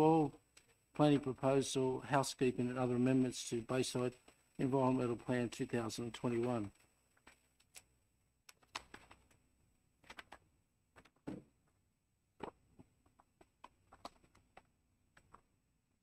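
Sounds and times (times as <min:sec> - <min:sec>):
small handling clicks and rustles: 0:00.4 - 0:00.9, 0:04.1 - 0:04.6, 0:05.9 - 0:09.4.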